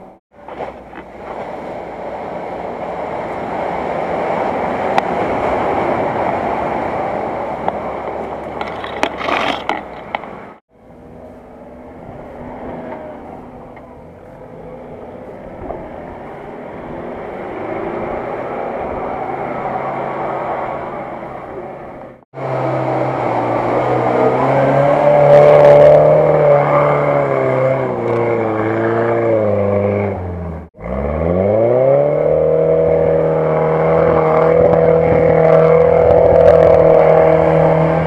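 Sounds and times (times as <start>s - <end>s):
suv engine revving under load: 11.0s - 38.0s.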